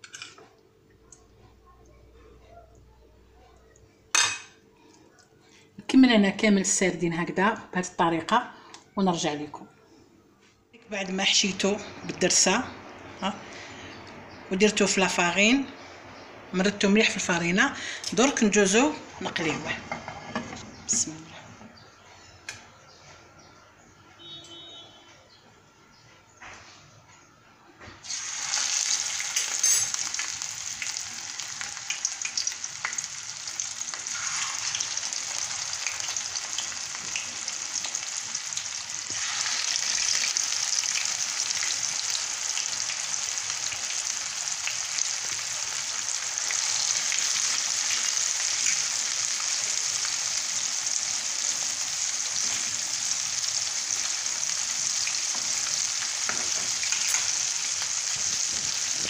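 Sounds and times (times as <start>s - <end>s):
fish sizzling in hot oil: 28.0s - 59.0s.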